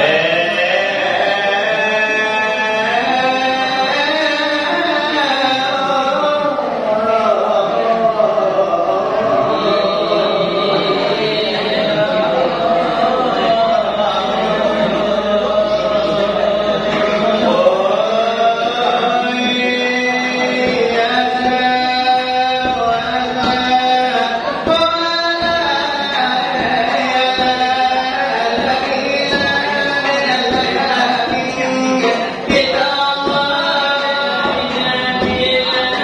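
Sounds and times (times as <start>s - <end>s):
vocal chanting in held notes: 0.0s - 36.0s
hand-beaten brass tray rhythm: 13.5s - 36.0s.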